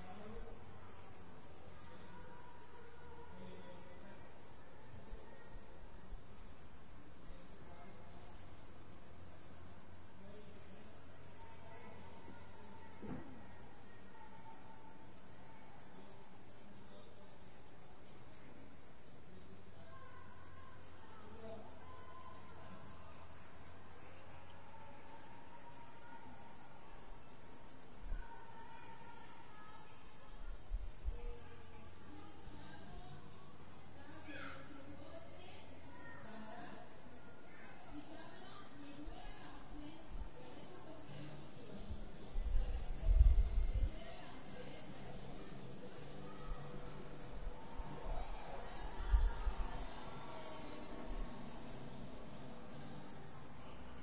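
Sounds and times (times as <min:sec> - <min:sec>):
crickets chirring: 0:00.0 - 0:54.0
faint low hum: 0:30.2 - 0:54.0.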